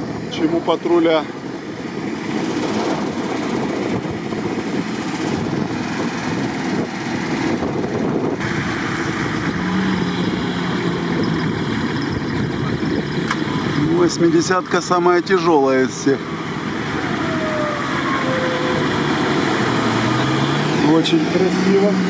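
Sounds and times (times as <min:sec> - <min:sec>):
off-road vehicle engine: 0:00.0 - 0:22.0.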